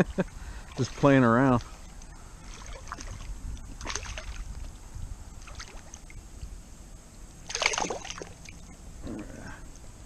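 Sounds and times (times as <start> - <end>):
fish splashing at water surface: 1.8 - 4.5, 7.5 - 8.6
loud splash: 3.8 - 4.4, 7.5 - 8.5.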